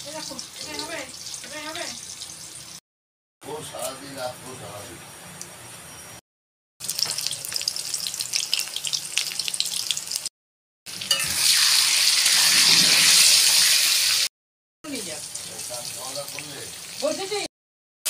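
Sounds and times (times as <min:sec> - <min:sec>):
potatoes frying in hot oil: 0:00.0 - 0:02.8, 0:06.8 - 0:10.3, 0:10.9 - 0:14.3, 0:14.9 - 0:17.5.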